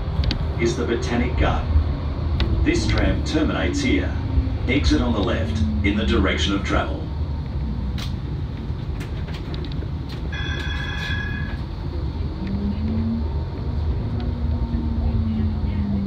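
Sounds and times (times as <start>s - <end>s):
tram rumbling on track: 0.0s - 16.0s
high ringing tone: 10.3s - 11.7s.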